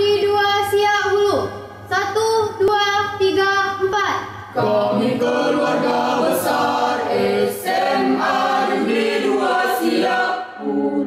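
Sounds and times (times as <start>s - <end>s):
choir singing a march: 4.6s - 11.0s.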